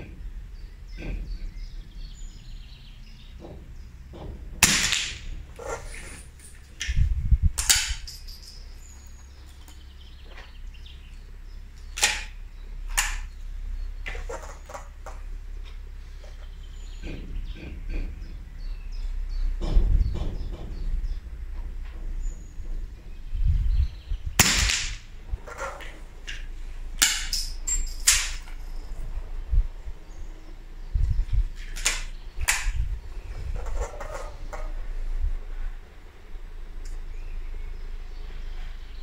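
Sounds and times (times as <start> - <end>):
suppressed rifle shot: 4.6 - 5.3, 24.4 - 25.1.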